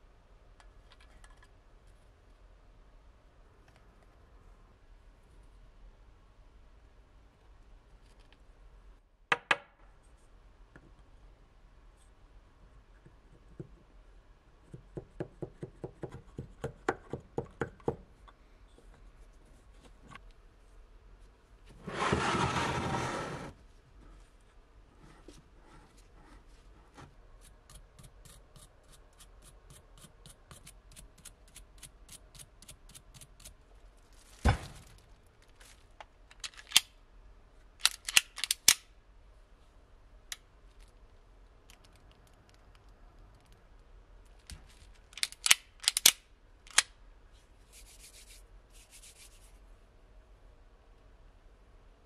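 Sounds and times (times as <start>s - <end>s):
plastic bag rustling: 34.0s - 35.9s.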